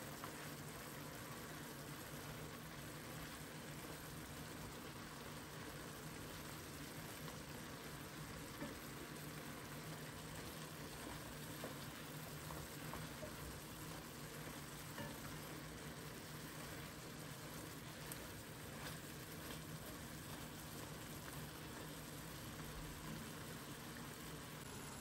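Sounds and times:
food sizzling in a pan: 0:00.0 - 0:25.0
spatula stirring: 0:10.3 - 0:22.0.

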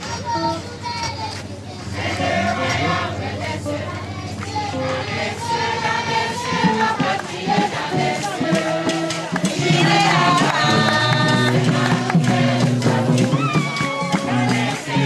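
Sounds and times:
crowd singing in chorus: 0:00.0 - 0:15.0.

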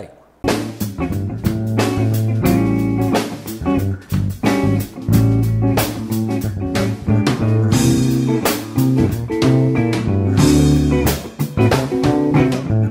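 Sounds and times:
band tune with guitar bass and drums: 0:00.4 - 0:12.9.

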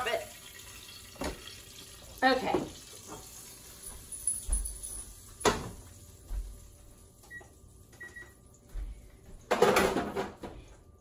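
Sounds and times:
electric range control panel beeps: 0:07.2 - 0:08.6
cookware knocking and thumping: 0:09.5 - 0:10.5.

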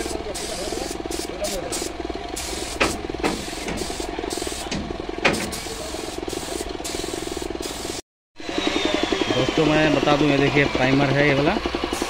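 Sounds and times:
spray gun hissing in spurts: 0:00.0 - 0:08.0
steady motor drone: 0:00.0 - 0:12.0.

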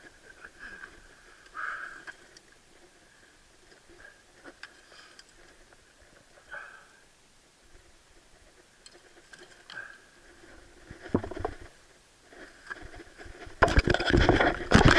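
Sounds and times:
fishing tackle clicking and rustling: 0:03.6 - 0:06.4, 0:08.4 - 0:11.8, 0:12.5 - 0:14.9.

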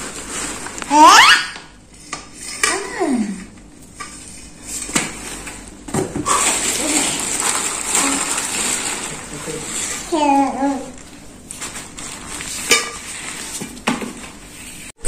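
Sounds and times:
plastic bag rustling: 0:00.0 - 0:01.2, 0:04.4 - 0:14.9.

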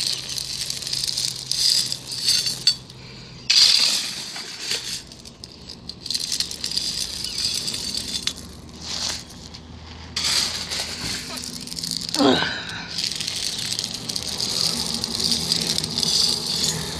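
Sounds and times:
gravel rattling in metal scoop: 0:00.0 - 0:16.9.

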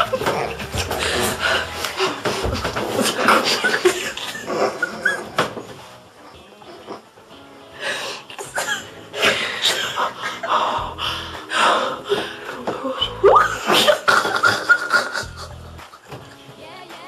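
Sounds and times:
women laughing breathily: 0:00.9 - 0:05.5, 0:08.4 - 0:10.9, 0:11.6 - 0:16.3.

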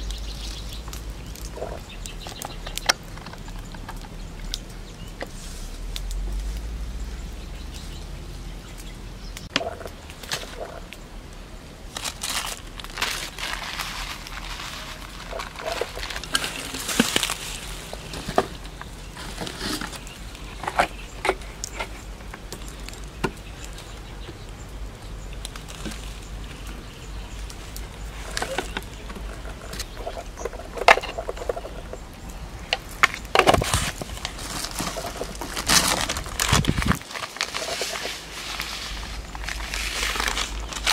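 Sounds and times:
plastic packets rustling: 0:09.6 - 0:11.0, 0:11.9 - 0:40.9.

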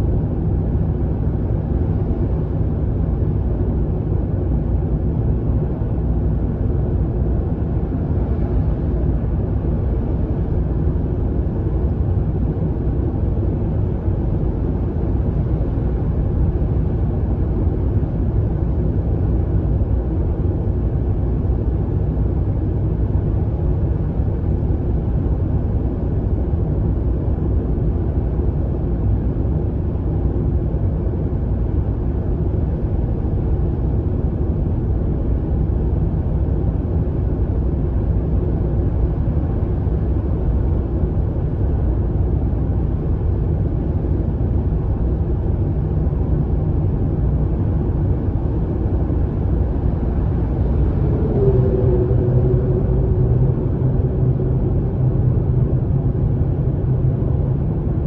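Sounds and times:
car cruising in tunnel: 0:04.7 - 0:58.0.

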